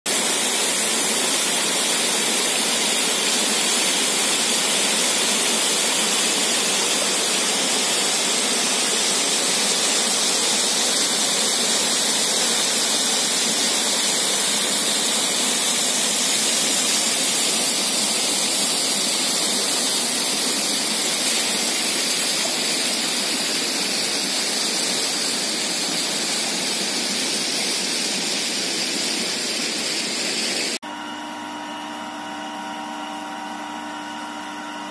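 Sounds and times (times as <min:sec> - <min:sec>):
stream rushing over rocks: 0:00.1 - 0:30.8.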